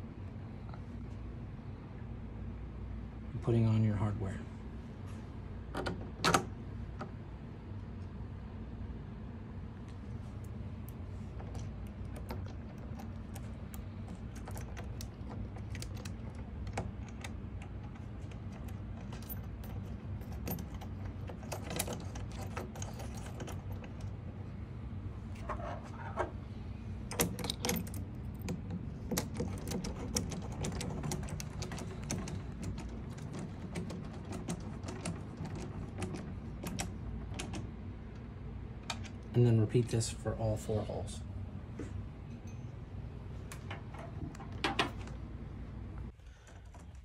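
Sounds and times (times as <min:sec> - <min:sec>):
steady low hum: 0:00.0 - 0:47.0
metal nuts and washers clinking: 0:11.3 - 0:24.1.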